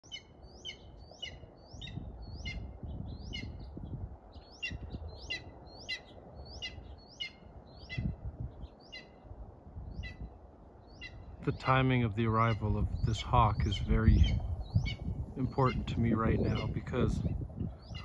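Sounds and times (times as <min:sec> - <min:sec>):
hawk calling: 0:12.3 - 0:17.2.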